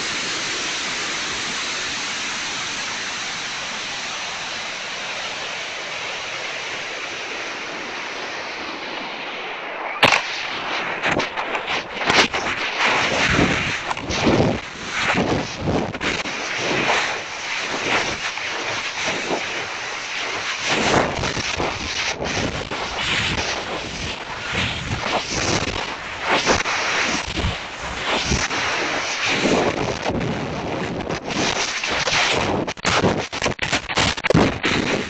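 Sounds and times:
air rushing over microphone: 0.0s - 35.0s.

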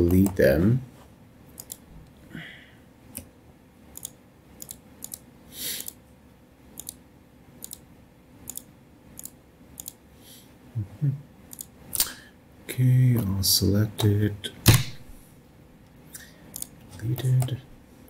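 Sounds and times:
computer mouse clicking: 1.6s - 1.8s, 3.9s - 5.2s, 6.8s - 7.0s, 7.6s - 10.0s, 11.5s - 12.1s, 16.5s - 17.6s.

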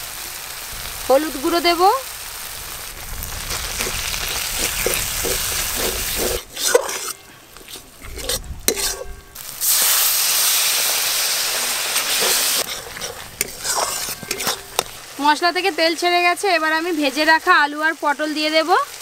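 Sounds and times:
paste sizzling in oil: 0.0s - 19.0s
water hissing in hot pan: 0.0s - 19.0s
spatula scraping a pan: 3.5s - 10.0s, 11.4s - 15.1s.

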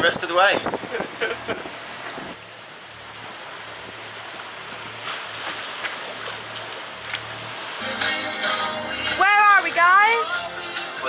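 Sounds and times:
water rushing along hull: 0.0s - 11.0s
wind: 0.0s - 11.0s.

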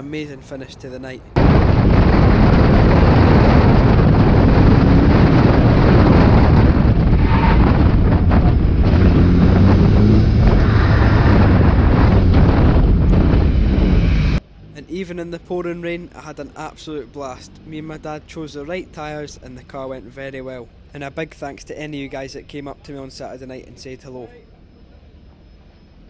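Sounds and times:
road noise: 0.0s - 26.0s
wind buffeting: 1.2s - 14.4s
car engine running: 5.3s - 14.4s.

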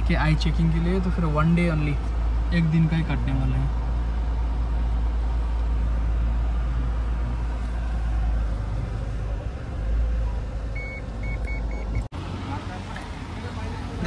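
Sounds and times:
vehicle engine rumble: 0.0s - 14.0s
short high beeps: 10.8s - 12.1s.

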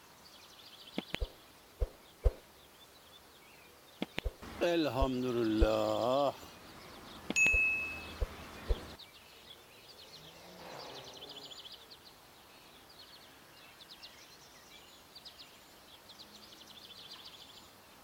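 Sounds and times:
low background hiss: 0.0s - 10.2s, 11.2s - 18.0s
songbird trills: 0.0s - 18.0s.

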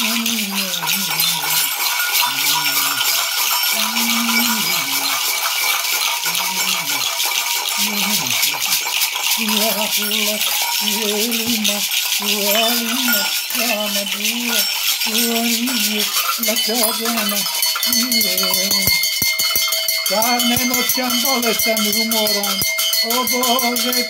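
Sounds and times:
man chanting in long notes: 0.0s - 3.2s, 3.8s - 5.3s, 6.3s - 7.1s, 7.8s - 8.7s, 9.4s - 19.0s
gourd rattles shaken: 0.0s - 24.0s
metal bells jingling: 0.0s - 24.0s.

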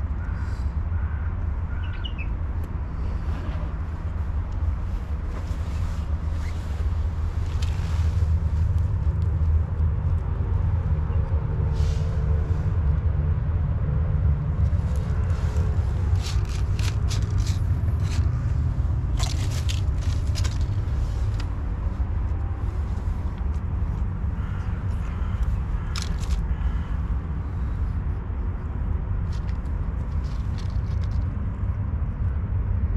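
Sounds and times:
low outdoor rumble: 0.0s - 32.9s
dry leaves and paper crackling: 4.1s - 10.2s, 14.6s - 27.0s, 29.2s - 31.4s.

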